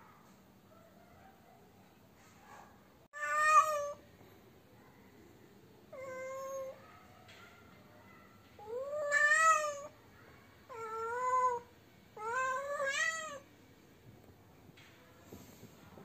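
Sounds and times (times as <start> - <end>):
cat yowling: 3.2 - 4.0, 5.9 - 6.9, 8.6 - 10.0, 10.7 - 13.5.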